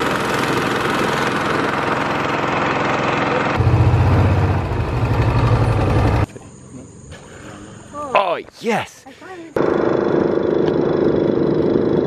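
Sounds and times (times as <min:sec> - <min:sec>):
outboard motor drone: 0:00.0 - 0:06.4, 0:09.6 - 0:12.0.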